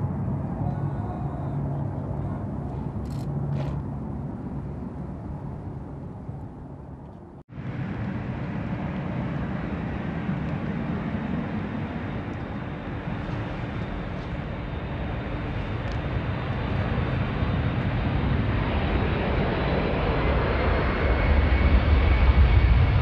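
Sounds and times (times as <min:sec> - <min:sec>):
jet engines rumbling: 0:00.0 - 0:23.0.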